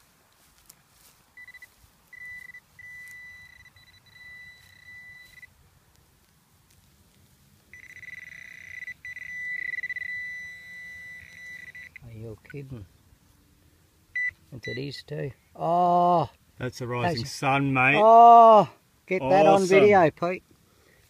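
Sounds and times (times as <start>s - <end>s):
metal detector alert tone: 1.4s - 5.5s, 7.7s - 12.5s, 14.2s - 15.0s.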